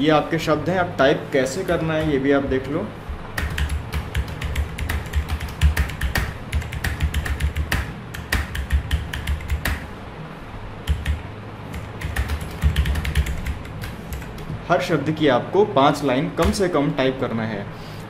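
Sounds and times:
keyboard typing: 3.4s - 9.9s, 10.9s - 14.6s.

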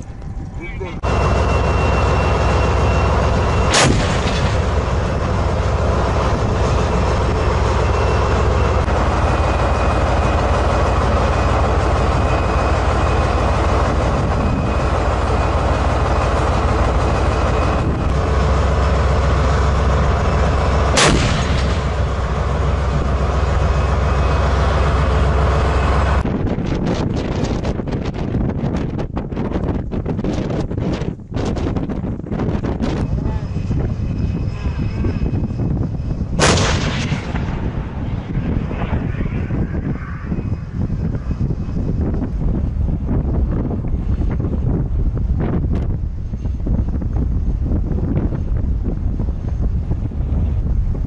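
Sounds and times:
vehicle engine deep rumble: 0.0s - 51.0s
gunshots: 3.7s - 4.7s, 21.0s - 22.0s, 36.4s - 37.6s.

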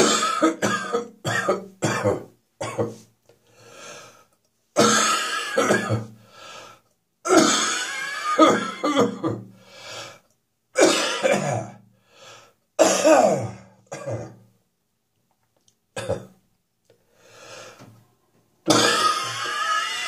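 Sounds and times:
person coughing: 0.0s - 3.0s, 4.8s - 6.2s, 7.3s - 9.5s, 10.8s - 11.8s, 12.8s - 14.4s, 16.0s - 16.4s, 18.7s - 19.6s.

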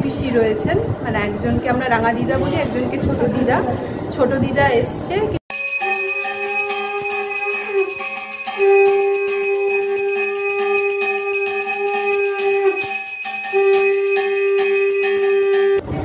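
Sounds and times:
hand bell ringing: 5.5s - 15.8s.

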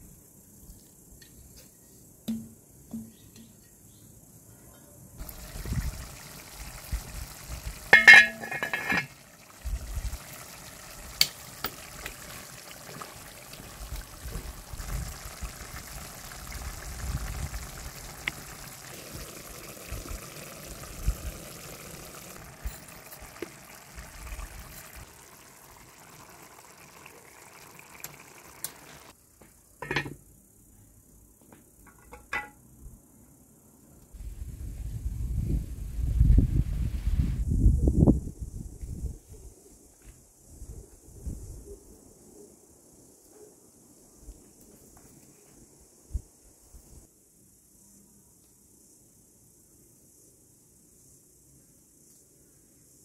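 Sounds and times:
clinks and soft knocks in pan: 2.3s - 3.8s, 7.8s - 9.2s, 29.8s - 30.2s, 31.8s - 32.6s
sauce sizzling in a frying pan: 5.2s - 29.1s.

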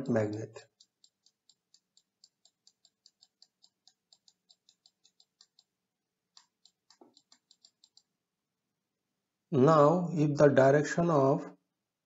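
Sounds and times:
faint rapid clicking: 0.0s - 8.1s.

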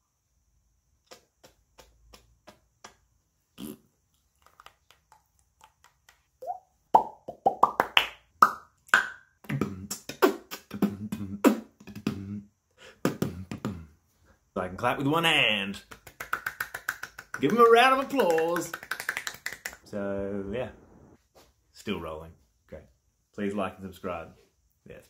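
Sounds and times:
faint mouth clicks: 1.0s - 6.3s
beatbox mouth sounds: 1.0s - 14.0s, 15.8s - 19.9s.

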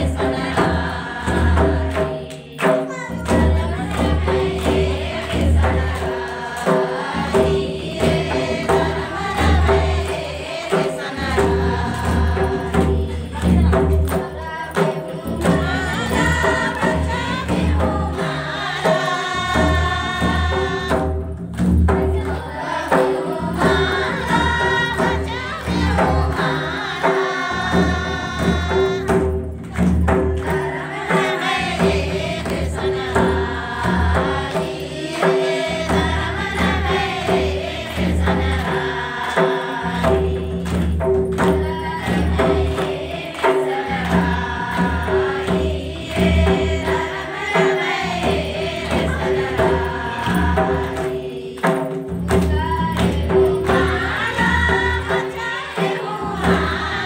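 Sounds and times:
barrel drum beating: 0.0s - 57.0s
group singing devotional song: 0.0s - 57.0s
hands clapping: 1.9s - 4.0s, 38.6s - 41.6s.

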